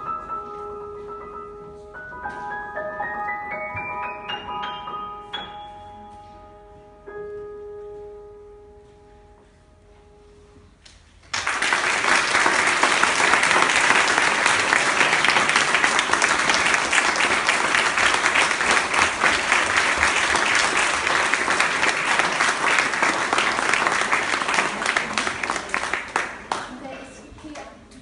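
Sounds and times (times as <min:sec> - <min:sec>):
audience applauding: 0:11.3 - 0:26.9.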